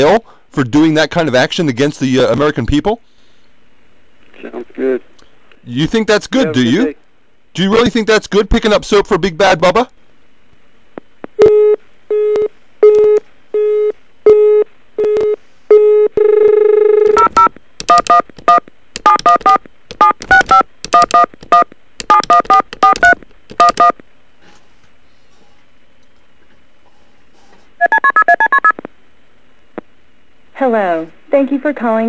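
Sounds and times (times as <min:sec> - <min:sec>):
long telephone tone: 0:11.4 - 0:18.2, 0:27.8 - 0:28.8
telephone line beeping: 0:11.4 - 0:24.0, 0:27.8 - 0:28.8
touch-tone keypad presses: 0:17.2 - 0:23.9.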